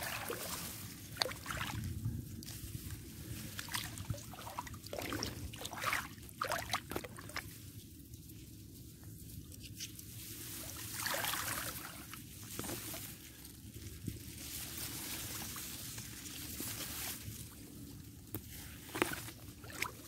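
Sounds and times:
muddy water sloshing: 0:00.0 - 0:07.6, 0:10.6 - 0:13.1, 0:18.8 - 0:20.0.

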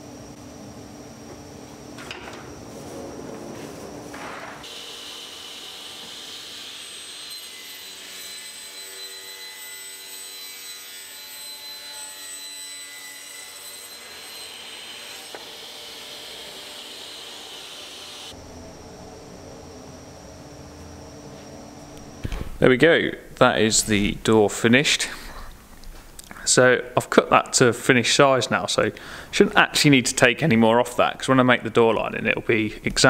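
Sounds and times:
panel saw cutting wood: 0:04.6 - 0:18.4
low hum: 0:18.3 - 0:26.3.

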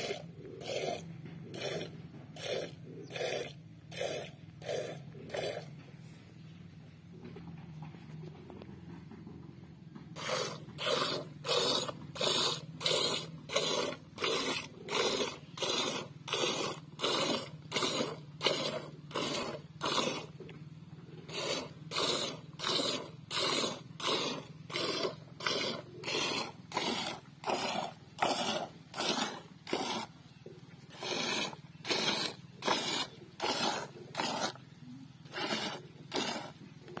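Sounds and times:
milk squirting into metal bucket: 0:10.2 - 0:20.4, 0:21.3 - 0:30.2, 0:30.8 - 0:34.6, 0:35.2 - 0:37.0.

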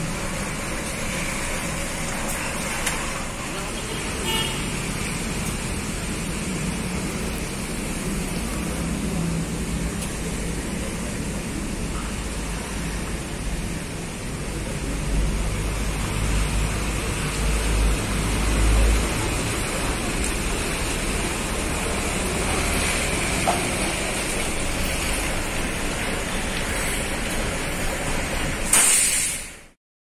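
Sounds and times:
bus diesel engine rumbling: 0:00.0 - 0:29.8
steady hiss: 0:28.6 - 0:29.7
short loud air hiss: 0:28.7 - 0:29.7.

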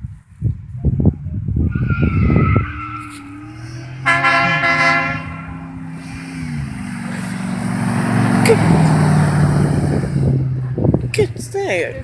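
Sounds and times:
vehicle engines running: 0:00.8 - 0:12.0
passing vehicle tyre noise: 0:00.9 - 0:12.0
vehicle horn: 0:02.6 - 0:05.8.

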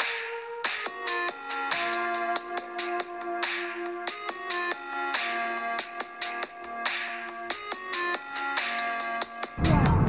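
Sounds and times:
electronic music with heavy bass: 0:09.6 - 0:10.0.

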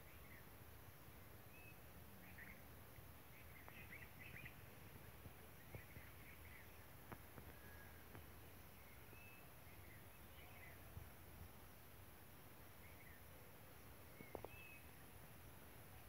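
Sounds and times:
faint bird chirps: 0:00.0 - 0:16.0
faint ticks: 0:03.4 - 0:04.4, 0:07.0 - 0:08.4, 0:14.1 - 0:14.8.

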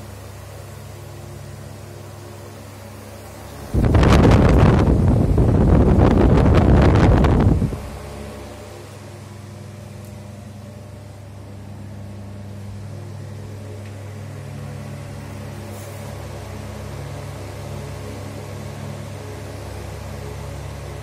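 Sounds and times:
electric motor hum: 0:00.0 - 0:21.0
rush of moving air: 0:03.7 - 0:08.0.

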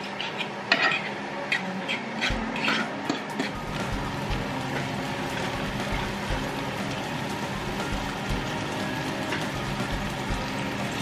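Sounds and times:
fork scraping a pan: 0:00.0 - 0:03.6
eggs sizzling in a frying pan: 0:02.2 - 0:11.0.

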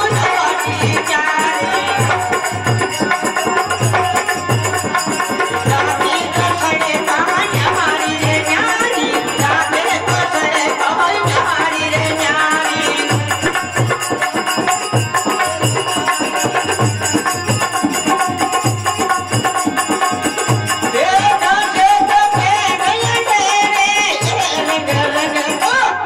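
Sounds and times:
person singing: 0:00.0 - 0:14.3, 0:20.8 - 0:26.0
hand drum beat: 0:00.0 - 0:25.8
harmonium melody: 0:00.0 - 0:26.0.

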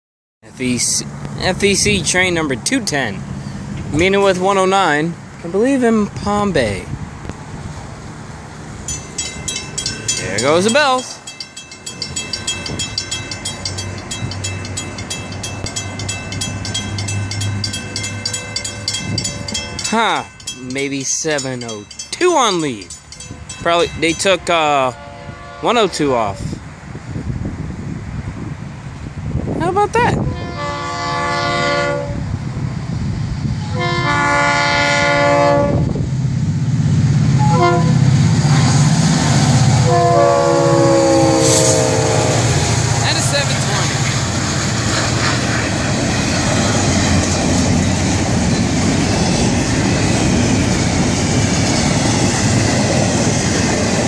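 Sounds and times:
diesel locomotive rumble: 0:00.5 - 0:54.0
crossing warning bells ringing: 0:01.7 - 0:05.7, 0:08.8 - 0:26.6, 0:37.3 - 0:54.0
locomotive air horn blasts: 0:24.8 - 0:26.6, 0:30.2 - 0:32.3, 0:33.6 - 0:36.0, 0:37.4 - 0:38.0, 0:39.8 - 0:43.6.

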